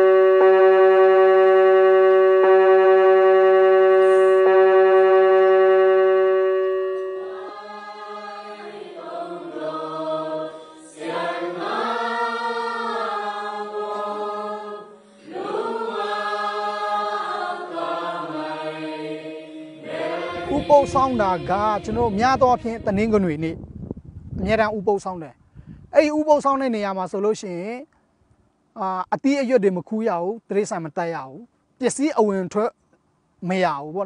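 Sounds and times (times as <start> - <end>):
congregation singing a hymn: 0.0 - 23.3
held instrumental chord: 0.0 - 23.4.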